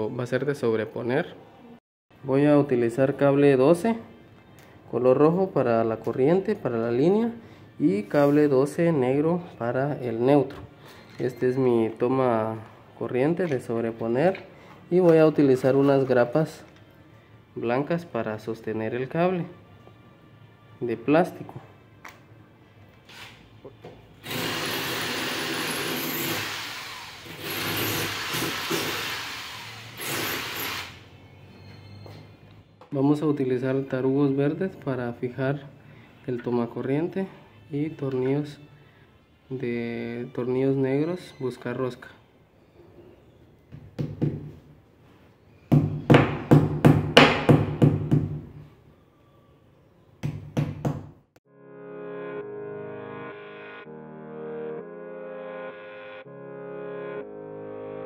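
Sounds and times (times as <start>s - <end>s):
cordless drill boring into wall: 24.2s - 31.0s.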